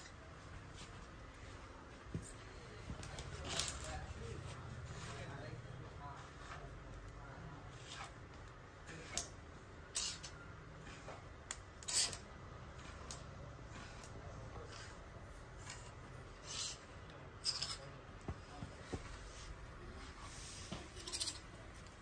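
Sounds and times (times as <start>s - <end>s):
hangers scraping along metal rail: 7.6s - 18.0s.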